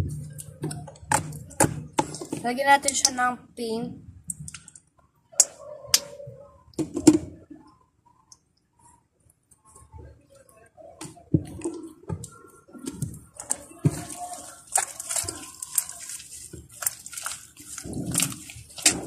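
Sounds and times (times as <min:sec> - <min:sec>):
slime squelching: 0:04.2 - 0:06.2, 0:09.7 - 0:19.0.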